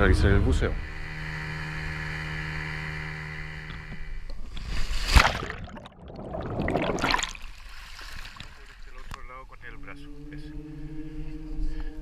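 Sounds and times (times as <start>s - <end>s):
steady hum: 0.0s - 7.3s
underwater rushing and bubbling: 4.5s - 9.2s
diver splashing into water: 4.6s - 8.8s.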